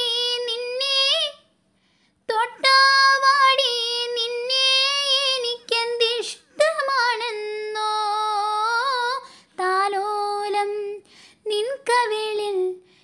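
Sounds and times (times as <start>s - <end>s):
child singing: 0.0s - 1.5s, 2.3s - 12.8s.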